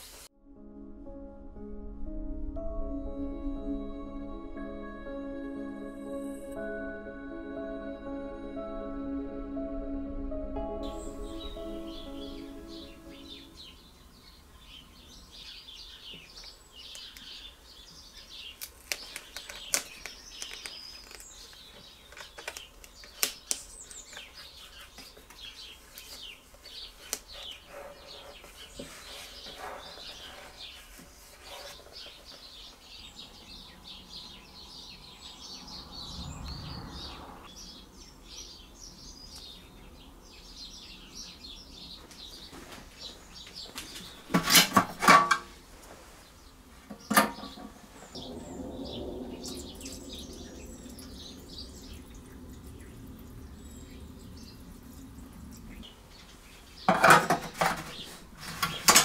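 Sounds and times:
small birds chirping: 10.8 - 44.4, 46.2 - 59.0.

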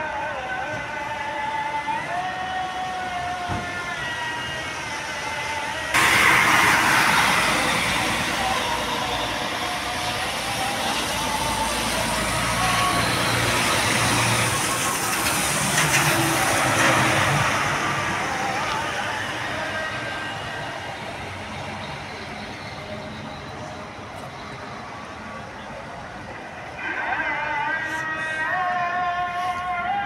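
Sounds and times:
bus engines running: 0.0 - 30.0
wet road hiss: 6.0 - 9.4.

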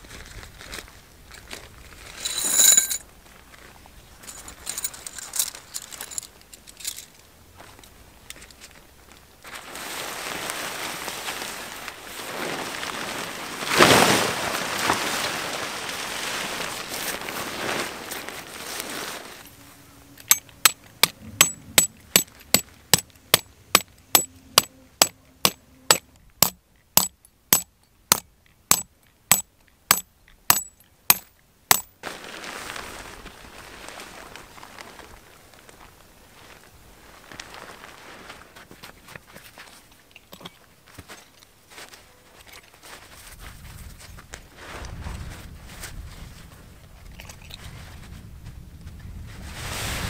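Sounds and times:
rustling handling noise: 0.6 - 48.2
sharp clinks: 2.2 - 3.0, 20.2 - 23.4, 24.1 - 31.9.

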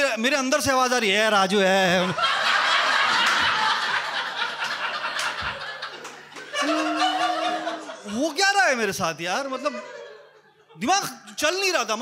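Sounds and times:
studio audience laughing: 1.8 - 8.5, 9.5 - 11.6.

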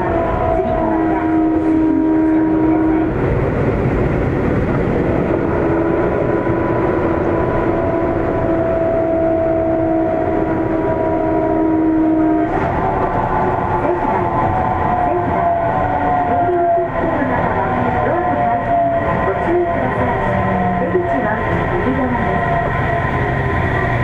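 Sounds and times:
wheels rumbling on rail: 0.0 - 24.0
train motor tones: 5.2 - 24.0.

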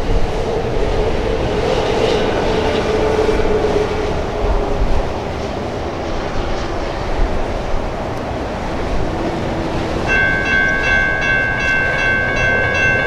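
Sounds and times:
freight train rumble: 0.0 - 13.0
road traffic passing: 0.0 - 13.0.

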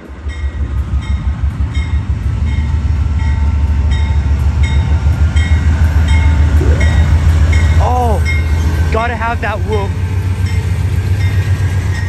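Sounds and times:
diesel locomotive engine rumble: 0.0 - 12.0.

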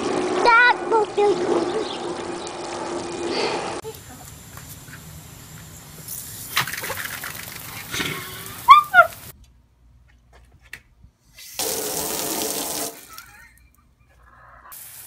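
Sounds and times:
sprinkler water spraying: 0.0 - 9.3, 11.4 - 13.4, 14.8 - 15.0
steady hiss: 3.9 - 9.3, 14.7 - 15.0.

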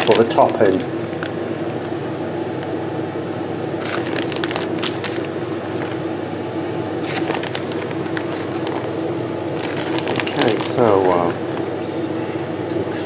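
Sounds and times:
cheese being sprinkled: 0.0 - 1.1
steady low hum: 0.0 - 13.0.

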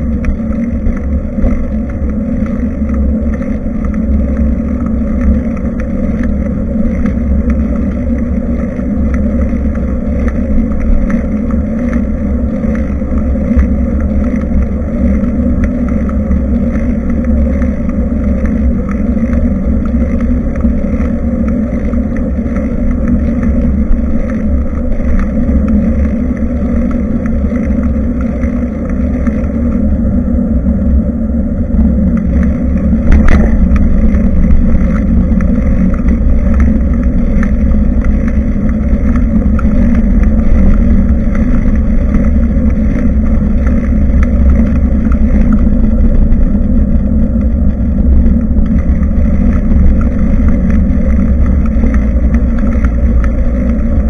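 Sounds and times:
bicycle road noise: 0.0 - 54.0
wind noise: 0.0 - 54.0.

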